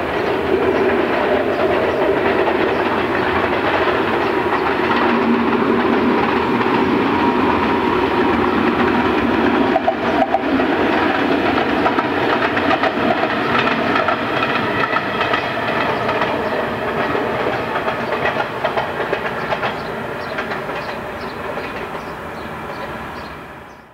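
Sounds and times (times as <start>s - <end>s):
train wheels clicking over rail joints: 0.0s - 23.8s.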